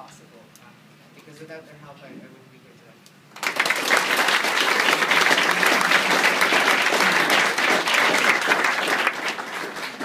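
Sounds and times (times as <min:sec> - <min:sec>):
people applauding: 0:03.3 - 0:10.0.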